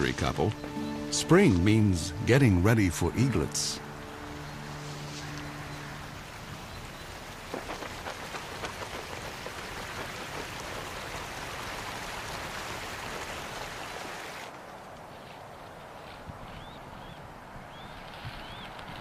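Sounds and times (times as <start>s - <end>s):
steady rain falling: 0.0s - 15.2s
raindrop hits: 7.2s - 13.6s.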